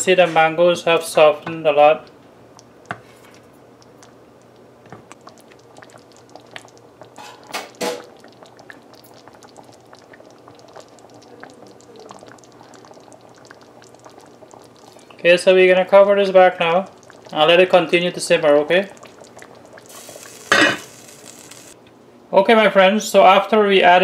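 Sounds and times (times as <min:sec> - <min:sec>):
sauce bubbling in a pot: 0:00.8 - 0:21.8.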